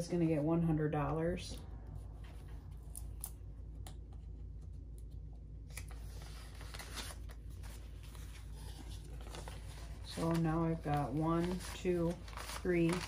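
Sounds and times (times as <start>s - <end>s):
banknotes rustling: 5.7s - 13.0s.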